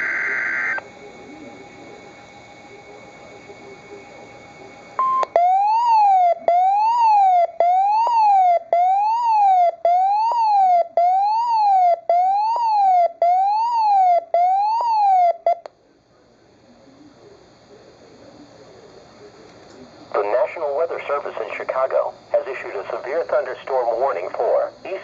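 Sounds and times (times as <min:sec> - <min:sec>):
rising and falling siren alarm: 0:00.0 - 0:15.7.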